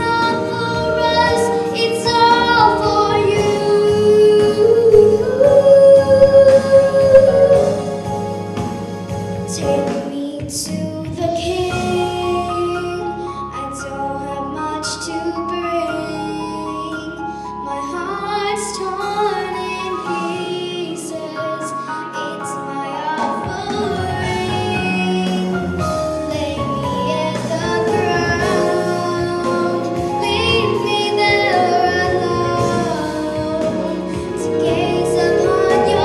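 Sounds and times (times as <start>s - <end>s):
girl singing into a microphone: 0.0s - 7.9s, 9.5s - 36.0s
instrumental accompaniment: 0.5s - 10.1s, 22.2s - 36.0s.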